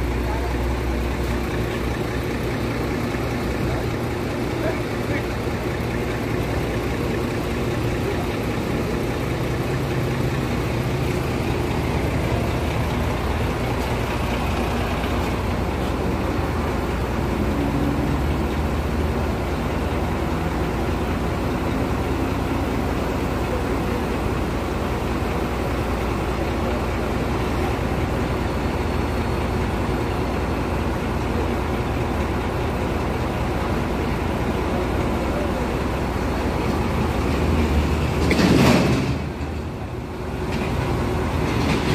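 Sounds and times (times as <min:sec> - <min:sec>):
diesel engine running: 0:00.0 - 0:41.9.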